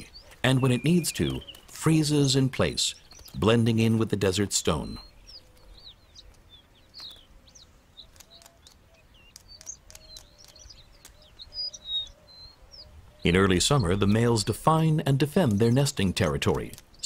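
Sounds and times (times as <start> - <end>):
lark song chirps: 0.0 - 17.0
sharp clicks: 3.1 - 3.4, 8.0 - 11.5, 16.5 - 17.0.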